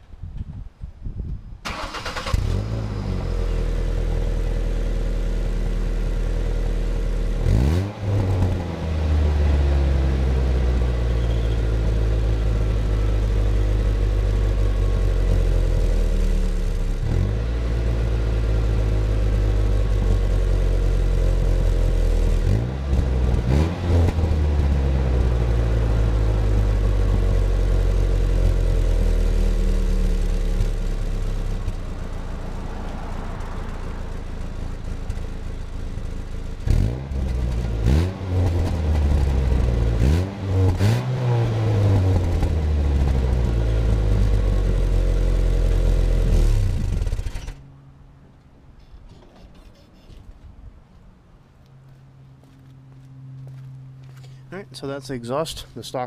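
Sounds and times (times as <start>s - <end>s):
truck engine starting: 1.6s - 4.8s, 18.6s - 47.8s
engine revving: 1.7s - 5.1s, 6.8s - 35.5s, 36.6s - 47.6s.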